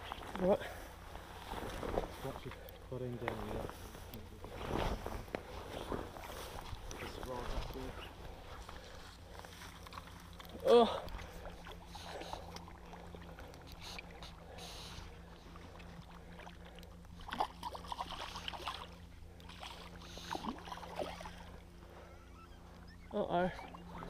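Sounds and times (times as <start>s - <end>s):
water splashing and sloshing: 0.0s - 24.0s
fabric rubbing on microphone: 4.4s - 8.1s.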